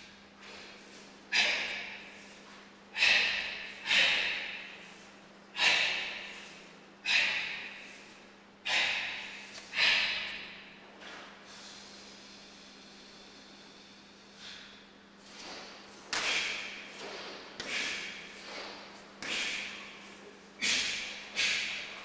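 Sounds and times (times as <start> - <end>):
forceful hissing exhalations: 3.0 - 10.3.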